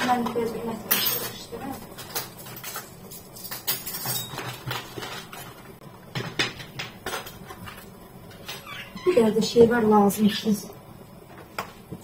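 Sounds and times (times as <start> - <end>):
utensils clinking and knocking: 0.2 - 5.6.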